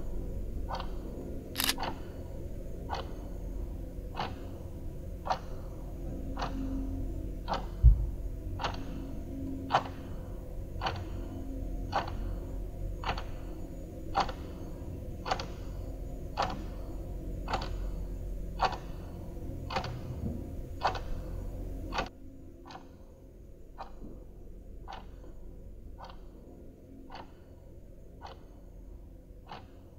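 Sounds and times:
low hum: 0.0 - 29.4
clock ticking: 1.6 - 1.8, 27.1 - 27.5, 29.5 - 29.8.

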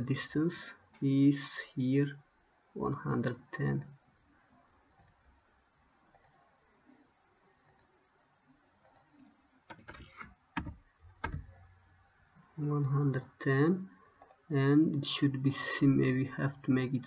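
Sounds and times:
faint room noise: 0.0 - 17.0
keyboard and mouse clicks: 5.0 - 5.2, 8.8 - 11.5.

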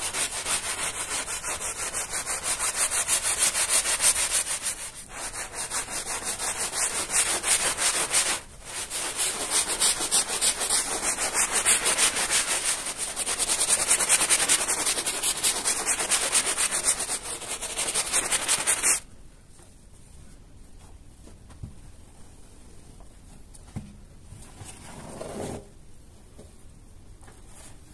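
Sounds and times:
scrub brush scrubbing wet carpet: 0.0 - 19.0.

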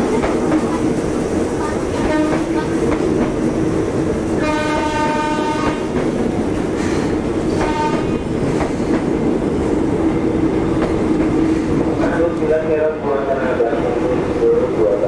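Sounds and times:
train rumbling past: 0.0 - 15.0
train horn: 2.0 - 2.5, 4.4 - 6.0, 7.5 - 8.2.

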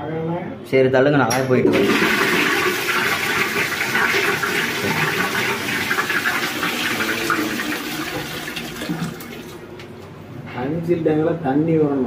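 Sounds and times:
toilet flushing: 1.7 - 9.9.

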